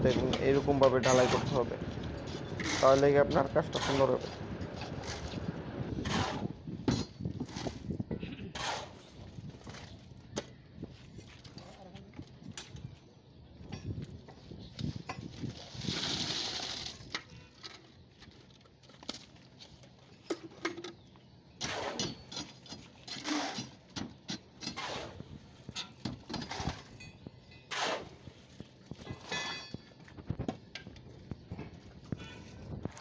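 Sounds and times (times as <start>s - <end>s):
wet concrete sliding from bucket: 15.5s - 17.1s.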